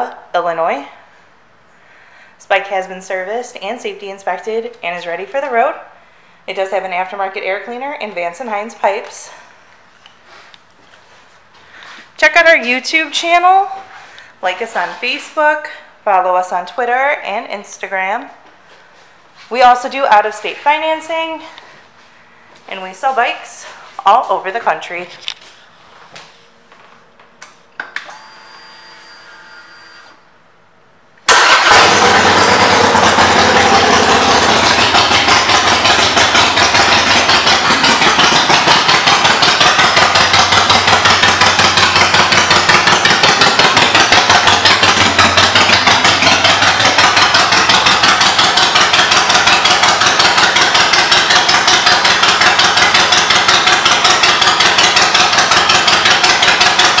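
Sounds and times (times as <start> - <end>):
motorcycle engine starting and idling: 31.2 - 57.0.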